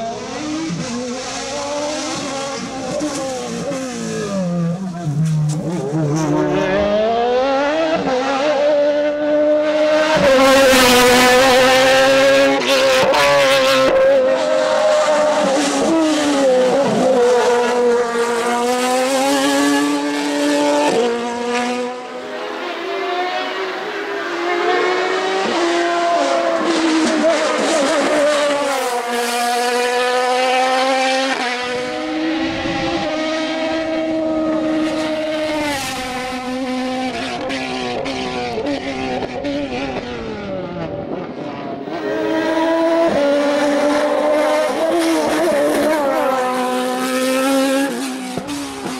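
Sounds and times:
race car engine revving: 0.0 - 48.9.

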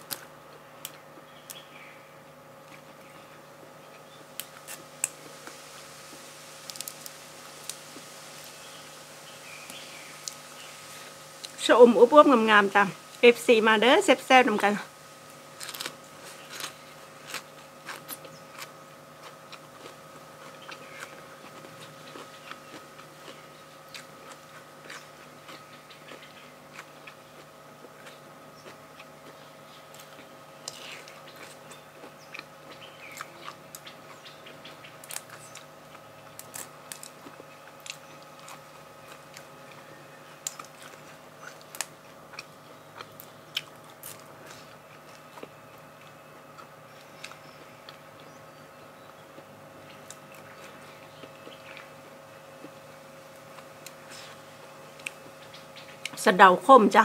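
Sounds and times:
crisp bites and crunches: 4.3 - 8.6, 15.3 - 48.3
chewing: 15.6 - 48.4, 49.1 - 56.2.

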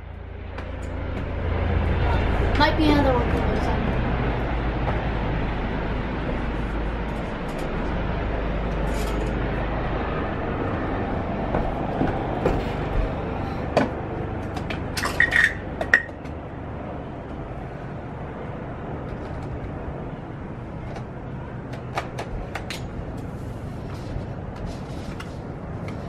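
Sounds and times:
helicopter rotor and engine rumble: 0.0 - 26.0.

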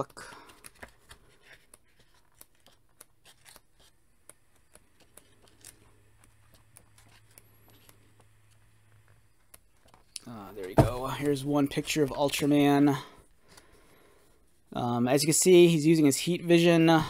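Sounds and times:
paper pages being turned: 0.0 - 12.7.

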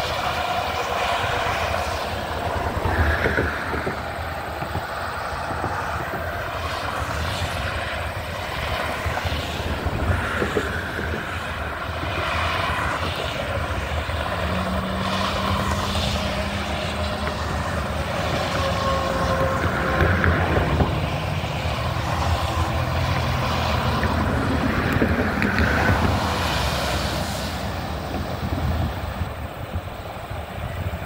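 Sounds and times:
low steady drone: 0.0 - 31.0
steady road hum: 0.0 - 31.0
vehicles passing by: 0.0 - 31.0.

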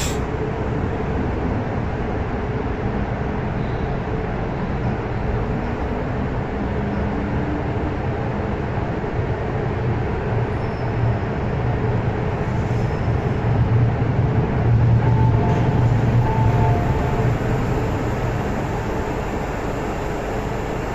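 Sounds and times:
subway train running hum: 0.0 - 20.9.

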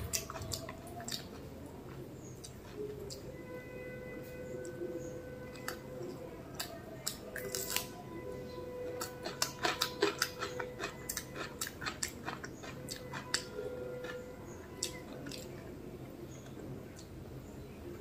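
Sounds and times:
fingers mixing rice on leaf: 5.5 - 8.0, 8.6 - 15.5.

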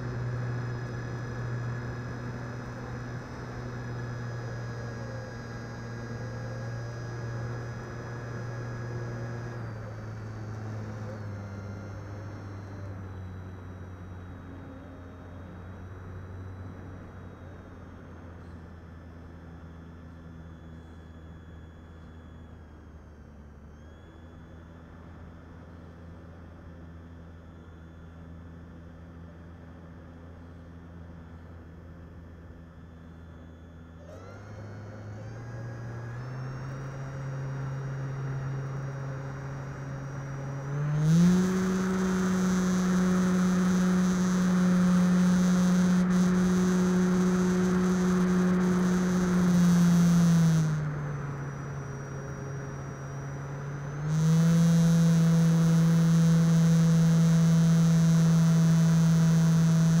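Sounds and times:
model plane motor humming: 0.0 - 18.7, 32.5 - 60.0.

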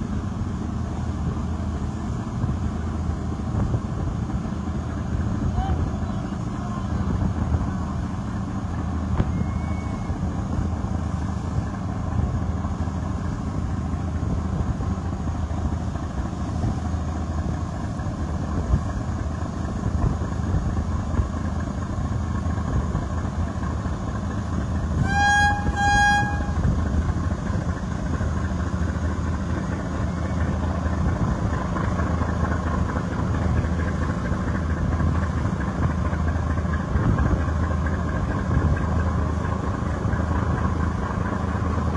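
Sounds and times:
boat engine drone: 0.0 - 41.9
rushing water: 0.0 - 41.9
wind: 0.0 - 41.9
horn blasts: 25.0 - 26.8.

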